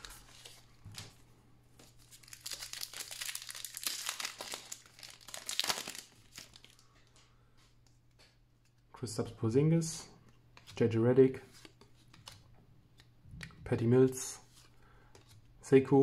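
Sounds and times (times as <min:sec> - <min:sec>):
foil wrapper crinkling and tearing: 0:02.0 - 0:06.8.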